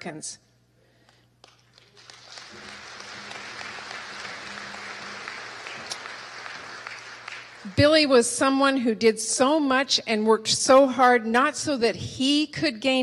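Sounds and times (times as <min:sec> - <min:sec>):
audience applauding: 0:01.4 - 0:08.2.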